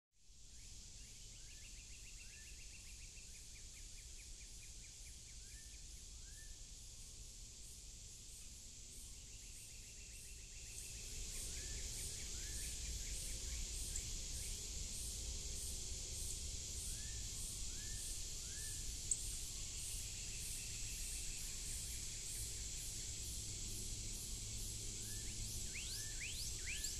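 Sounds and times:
steady hiss: 0.2 - 26.9.

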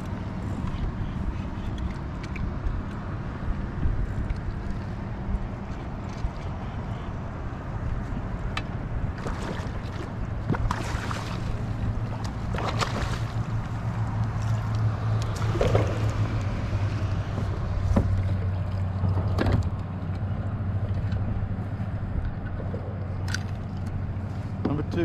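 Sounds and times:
net and rod knocking on kayak: 15.3 - 16.6, 17.2 - 18.4.

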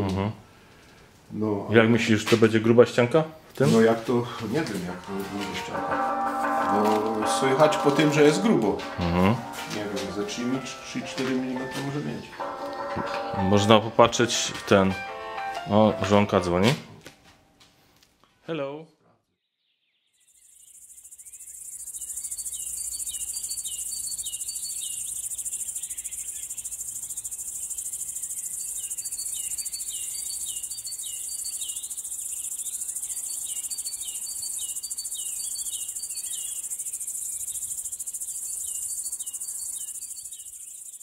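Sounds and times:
crickets chirping: 20.3 - 41.0.

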